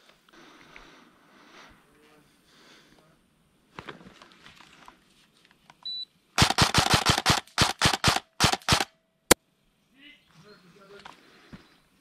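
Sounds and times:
faint rustling of gear: 3.7s - 5.9s
airsoft gun shots: 6.4s - 8.9s.

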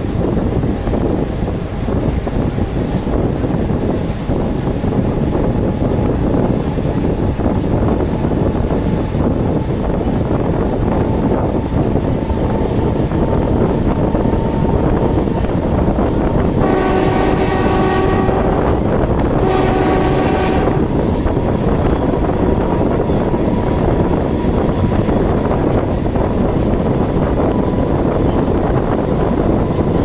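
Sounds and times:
rumble of moving train: 0.0s - 30.0s
wind on microphone: 0.0s - 30.0s
train horn blasts: 16.6s - 21.2s.

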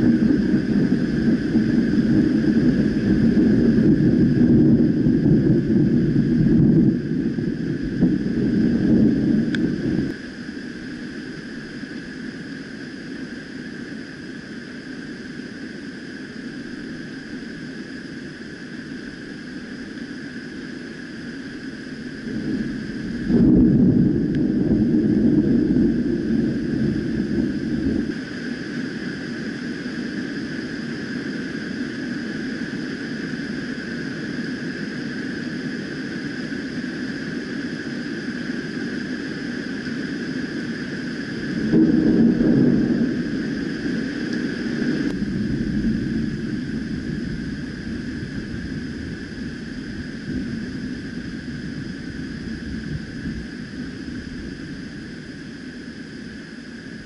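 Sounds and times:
thunder rumbling: 0.0s - 10.2s, 21.9s - 30.8s, 40.7s - 55.7s.

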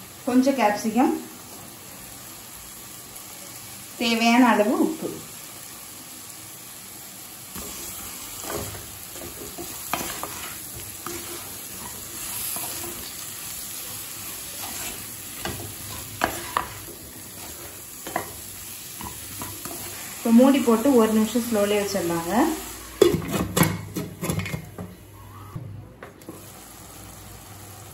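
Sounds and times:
vegetables sizzling in oil: 0.0s - 25.6s, 26.3s - 27.9s
spatula scraping a pan: 7.6s - 20.1s.

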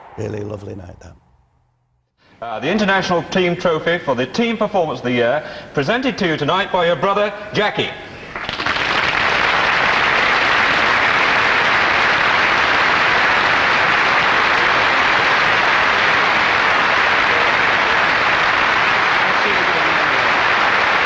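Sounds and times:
audience applauding: 8.3s - 21.0s.

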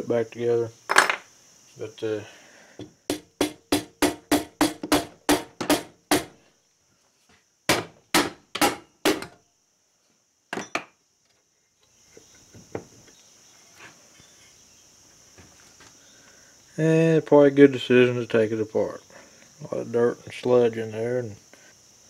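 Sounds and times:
hammer tapping on metal: 2.8s - 6.3s.

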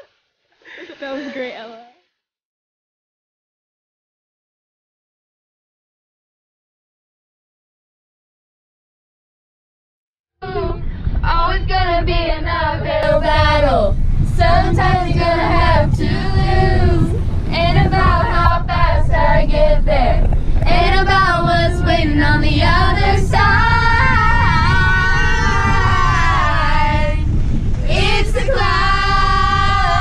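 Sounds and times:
girls singing together: 10.4s - 30.0s
low road rumble: 10.4s - 30.0s.

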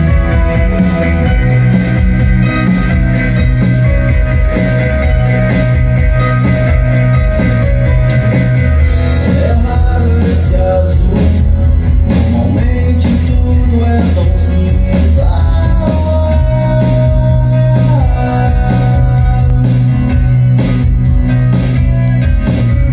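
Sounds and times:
rock song through speakers: 0.0s - 22.9s
singing vocals: 9.3s - 11.5s, 12.1s - 19.9s.

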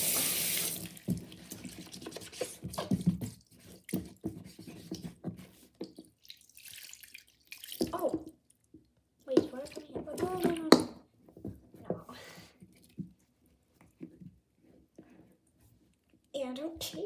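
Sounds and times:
running tap: 0.0s - 1.8s
water dripping: 5.8s - 10.9s.

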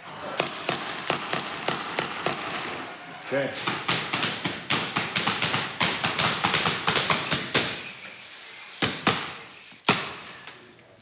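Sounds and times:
loud echoing cracks: 0.1s - 7.8s
paintball marker firing: 0.4s - 2.8s, 3.6s - 7.9s.

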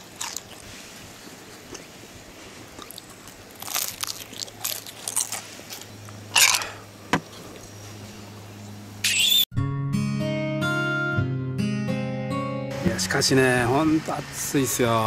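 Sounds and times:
crunching bites: 0.0s - 0.7s, 2.8s - 6.8s.

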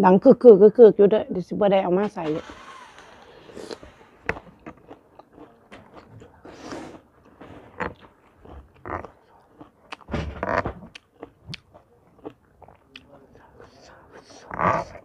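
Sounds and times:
metal tray clunking: 2.0s - 2.8s
chewing and crunching: 2.4s - 15.0s.

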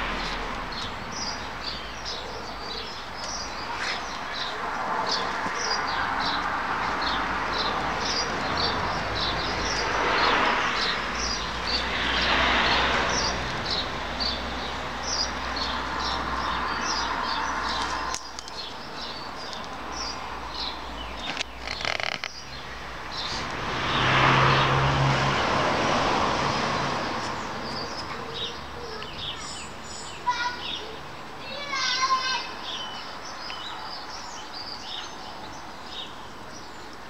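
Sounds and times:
small birds chirping: 0.0s - 24.8s, 26.8s - 37.0s
traffic rushing: 0.0s - 37.0s.

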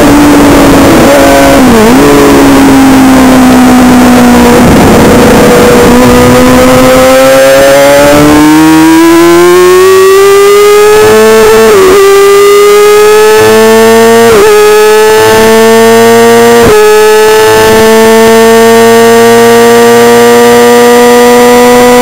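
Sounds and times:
wind rush on microphone: 0.0s - 8.5s
motorcycle engine at high revs: 0.0s - 22.0s.

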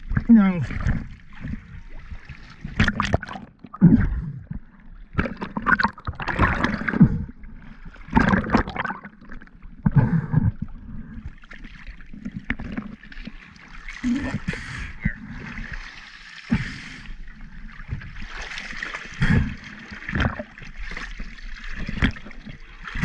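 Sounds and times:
water sloshing against boat hull: 11.0s - 23.0s.

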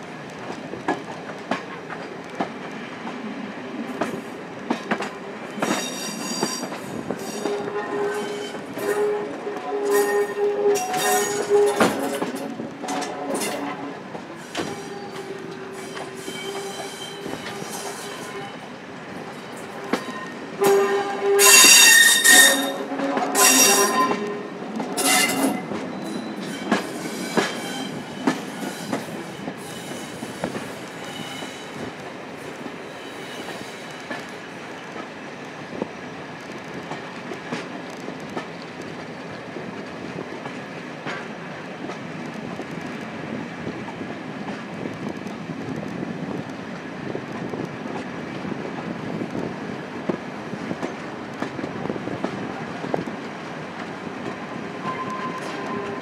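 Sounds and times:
train running rumble: 0.2s - 56.0s
wheels clicking over rail joints: 3.8s - 32.8s
train wheels squealing: 5.5s - 9.1s, 9.9s - 12.3s, 14.4s - 18.7s, 19.5s - 20.5s, 21.4s - 22.8s, 23.4s - 24.2s, 25.0s - 32.0s, 32.8s - 34.3s, 54.8s - 56.0s.

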